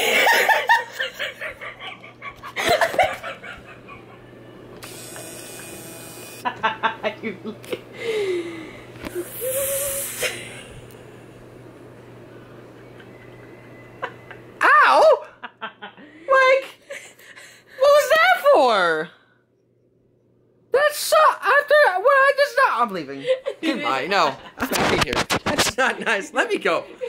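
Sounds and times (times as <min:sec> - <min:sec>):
people laughing: 0:00.0 - 0:04.4, 0:06.4 - 0:08.3, 0:15.0 - 0:16.4, 0:23.2 - 0:24.7.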